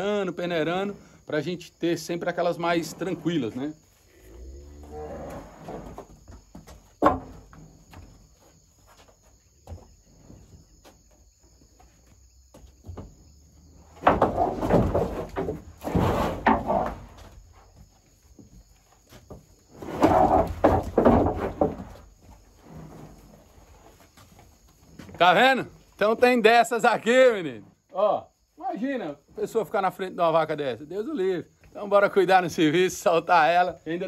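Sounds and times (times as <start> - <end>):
cow knocking against wooden boards: 5.9 - 8.4, 12.5 - 13.3, 13.9 - 15.7, 19.2 - 22.0.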